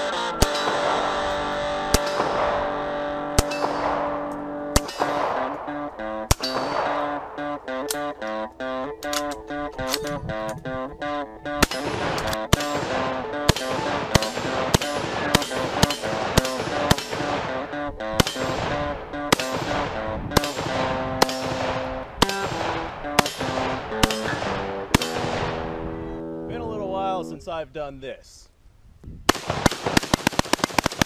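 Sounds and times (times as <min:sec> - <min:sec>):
rifle shots: 0:00.0 - 0:08.1, 0:11.6 - 0:25.9, 0:29.3 - 0:31.0
background music: 0:00.0 - 0:27.5.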